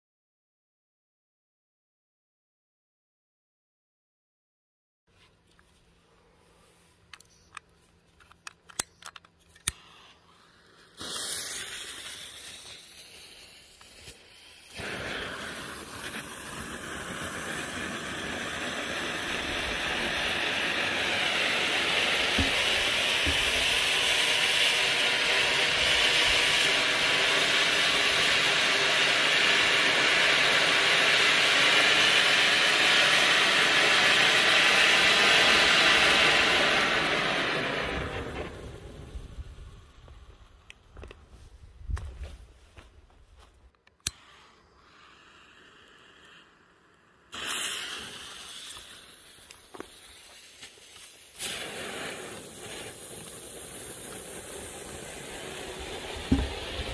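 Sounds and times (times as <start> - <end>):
sharp clicks: 7.1 - 9.9
fountain firework hissing: 9.8 - 40.6, 44.2 - 56.9.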